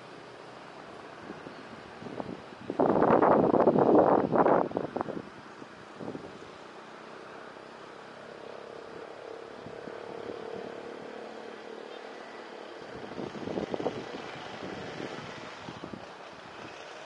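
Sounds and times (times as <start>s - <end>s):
small truck passing: 0.0s - 17.0s
steady traffic hum: 0.0s - 17.0s
motorcycles passing: 6.0s - 17.0s.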